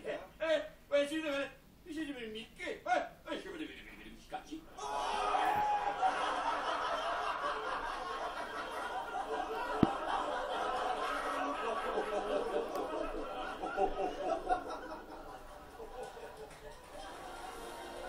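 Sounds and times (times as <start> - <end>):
people laughing on television: 4.8 - 18.0.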